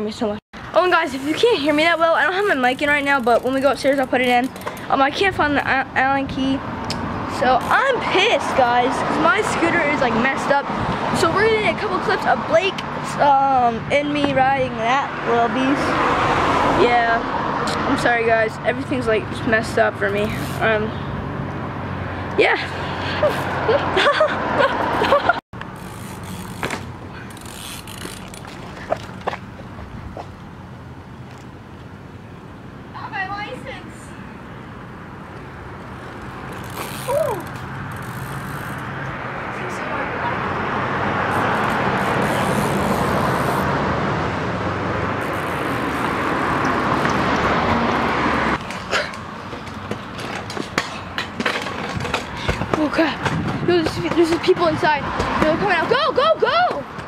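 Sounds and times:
bike tyres rolling on pavement: 0.8 - 5.6, 19.4 - 20.9, 23.0 - 32.0, 35.2 - 44.0, 45.0 - 55.9
short high squeaks: 25.7 - 29.4, 36.5 - 38.9, 41.3 - 43.7, 45.2 - 47.3
knocks and clatter: 48.6 - 55.6.

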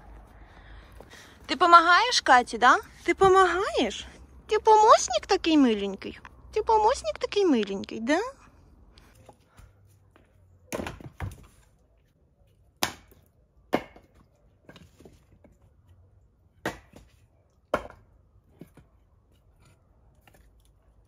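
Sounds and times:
firewood logs knocking: 10.7 - 11.5, 16.6 - 18.9.

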